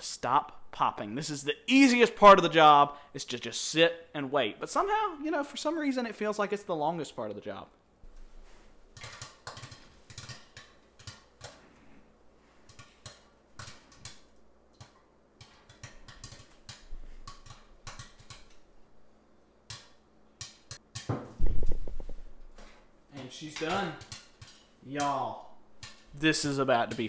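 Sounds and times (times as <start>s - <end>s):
loud thump: 21.2s - 22.2s.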